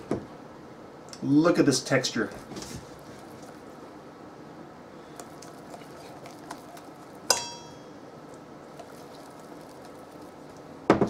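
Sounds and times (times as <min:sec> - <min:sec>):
whisk stirring batter in bowl: 0:05.2 - 0:07.4
whisk clinking against bowl: 0:07.3 - 0:07.9.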